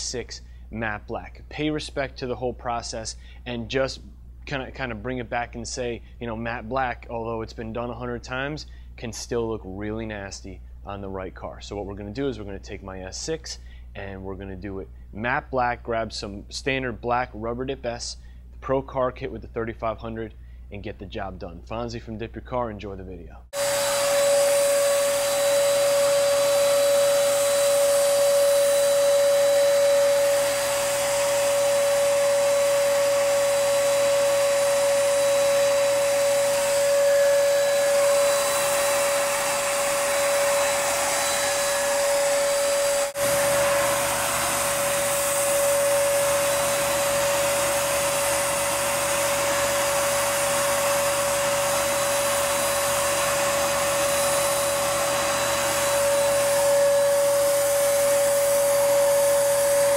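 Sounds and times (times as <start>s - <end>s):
spray gun motor whine: 23.6s - 59.9s.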